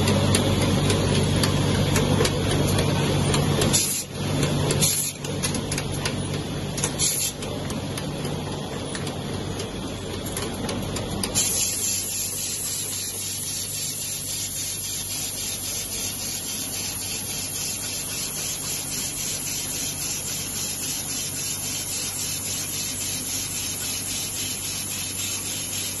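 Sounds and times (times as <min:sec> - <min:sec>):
rapid regular machine ticking: 0:00.0 - 0:26.0
bottling machine hissing: 0:03.6 - 0:04.2, 0:04.8 - 0:05.2, 0:06.8 - 0:07.4, 0:11.3 - 0:26.0.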